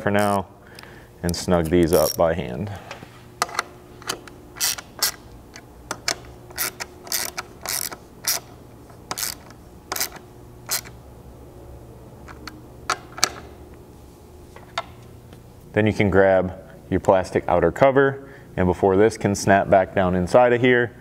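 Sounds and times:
hand ratchet clicking: 0.1 - 2.3, 3.4 - 8.5, 9.1 - 11.0.

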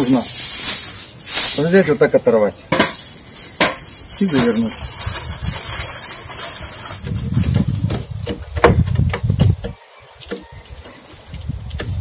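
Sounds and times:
metal poker scraping charcoal: 2.6 - 12.0.

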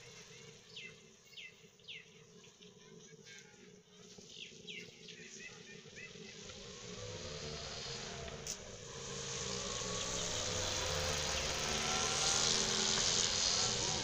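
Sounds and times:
motorcycle engine buzzing: 5.9 - 14.0.

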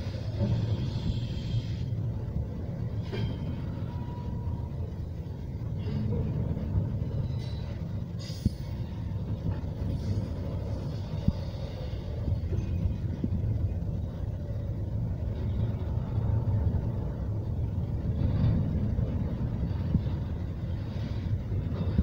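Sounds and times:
freight wheels rumbling on rail: 0.0 - 22.0.

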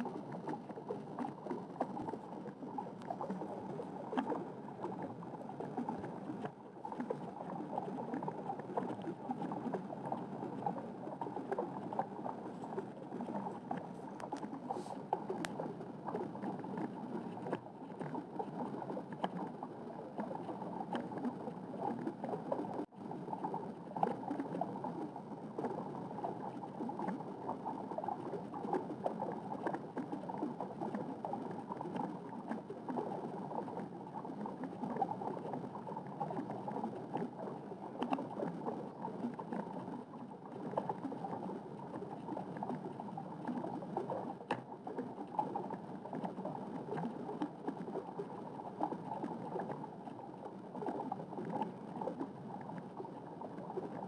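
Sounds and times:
faint clicks: 0.0 - 54.0
underwater rush of water: 0.0 - 54.0.

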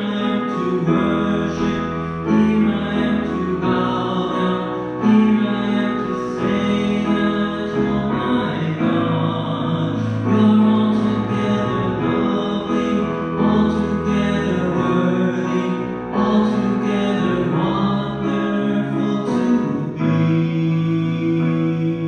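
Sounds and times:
hymn singing: 0.0 - 22.0
keyboard accompaniment: 0.0 - 22.0.

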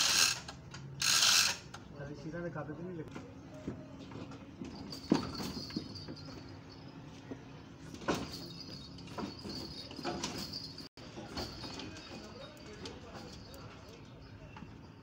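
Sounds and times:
metal clanks and knocks: 4.0 - 13.4.

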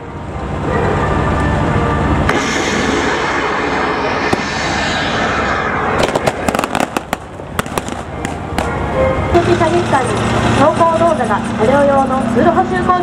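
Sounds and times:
tracked vehicle engines rumbling: 0.0 - 13.0
pyrotechnic bangs: 2.3 - 8.8.

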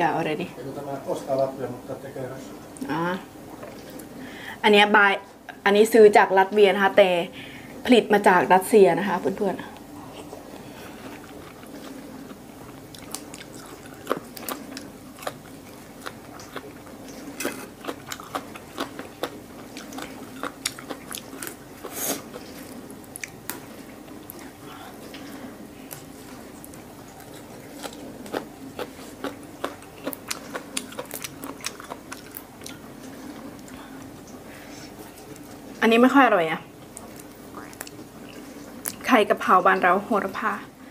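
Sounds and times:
steady low hum: 0.0 - 40.9
chewing fresh herbs: 9.7 - 35.8, 36.8 - 39.1.

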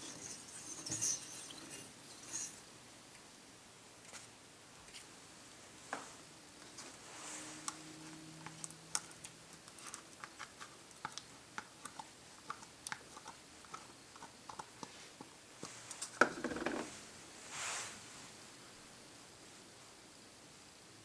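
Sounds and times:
spatula scraping pan: 0.0 - 2.6.

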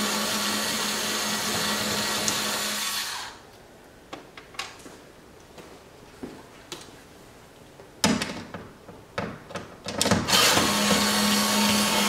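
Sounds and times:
cordless power driver running: 10.3 - 12.0.

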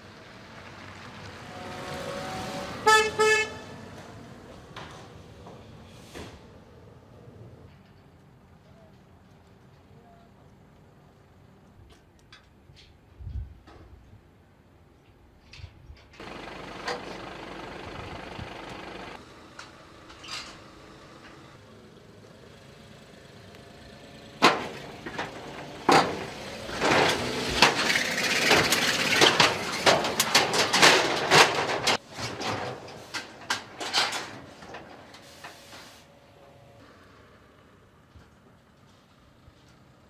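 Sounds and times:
vehicle noise: 0.0 - 12.9, 16.0 - 40.0
metallic clanks from wheels on ramps: 18.6 - 21.5, 24.0 - 35.8.

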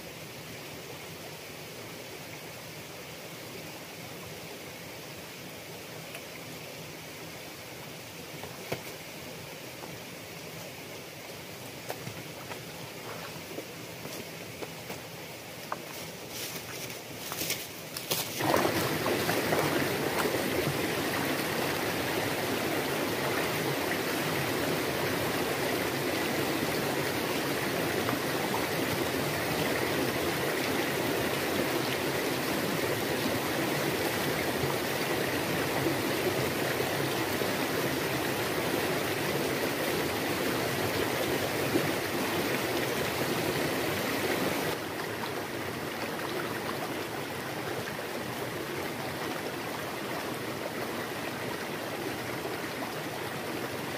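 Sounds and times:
stream running over rocks: 0.0 - 53.9.

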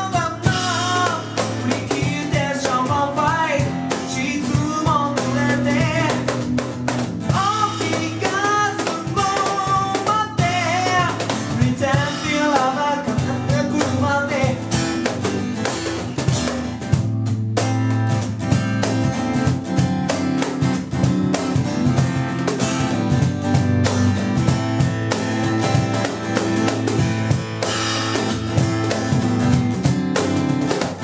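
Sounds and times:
person singing: 0.0 - 6.5, 7.3 - 15.0
acoustic guitar strumming: 0.0 - 31.0
cajon tapping: 0.0 - 31.0.

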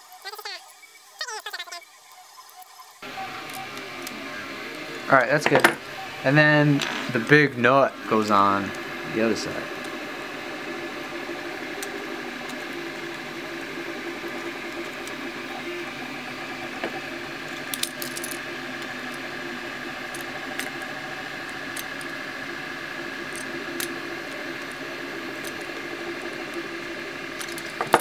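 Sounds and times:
steady background hum: 0.1 - 28.0.

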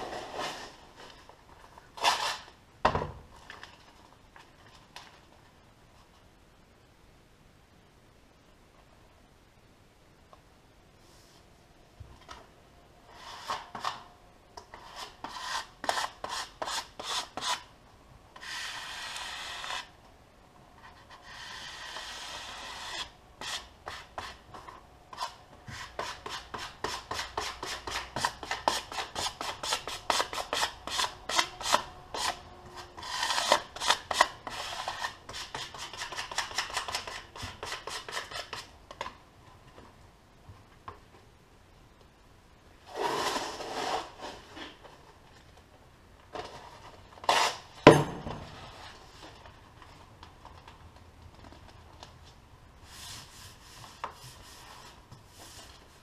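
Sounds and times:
rubbing and scraping on vinyl: 13.1 - 17.7, 20.8 - 39.2, 42.9 - 45.7, 48.6 - 56.0.

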